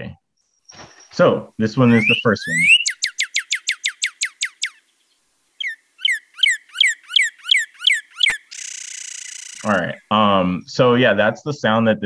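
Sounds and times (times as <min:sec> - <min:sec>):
bird singing downslurred whistles: 0:01.8 - 0:04.8, 0:05.6 - 0:09.7
steady hiss: 0:04.8 - 0:05.6, 0:08.5 - 0:11.8.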